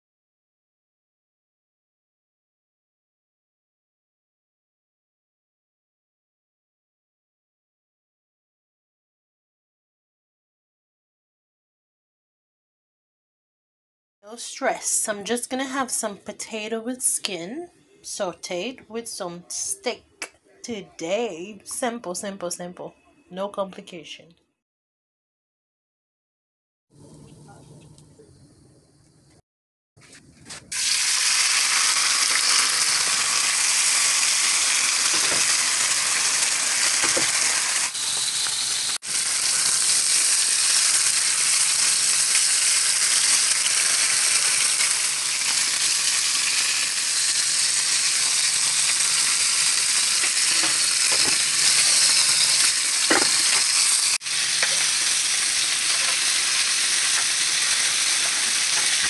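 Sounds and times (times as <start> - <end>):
steak sizzling in a frying pan: 30.7 - 59.0.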